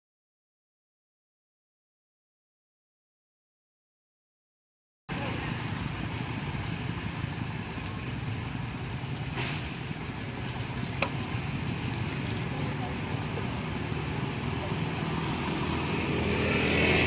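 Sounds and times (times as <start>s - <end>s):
low rumble with hiss: 5.1s - 16.4s
sharp ticks: 5.5s - 15.9s.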